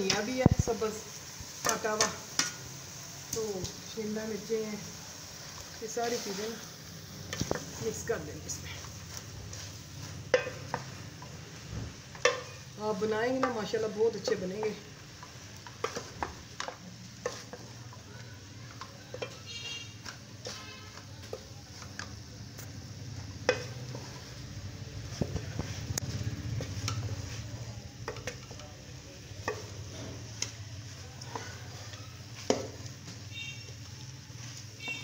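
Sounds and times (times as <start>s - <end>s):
faint sizzle: 0.0s - 35.0s
utensil scraping a pan: 7.3s - 18.0s, 18.7s - 22.1s, 23.2s - 28.6s.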